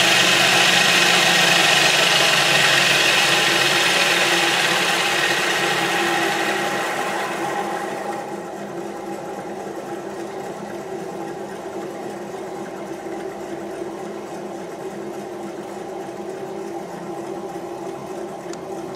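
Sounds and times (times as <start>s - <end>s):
small electric motor humming: 0.0s - 7.7s.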